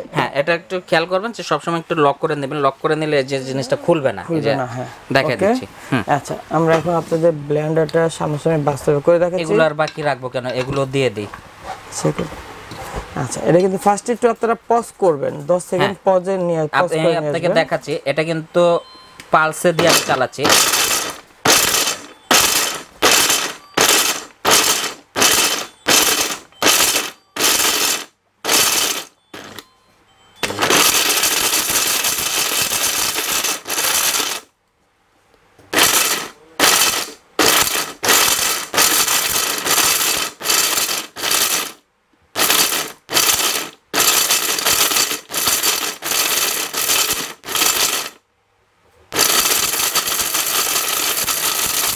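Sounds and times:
blender pulsing: 19.8s - 29.6s, 30.4s - 34.5s, 35.7s - 41.8s, 42.4s - 48.2s, 49.1s - 51.9s
hard pieces rattling in jar: 19.8s - 29.6s, 30.4s - 34.5s, 35.8s - 41.8s, 42.4s - 48.2s, 49.2s - 51.9s.

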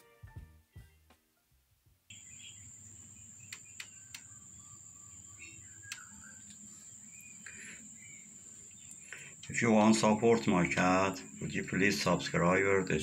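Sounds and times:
faint high chirps: 2.1s - 11.7s
light clicks: 5.9s - 6.6s.

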